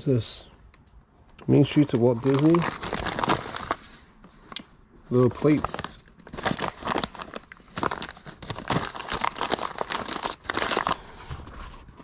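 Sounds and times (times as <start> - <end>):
paper packing crinkling: 1.6 - 12.0.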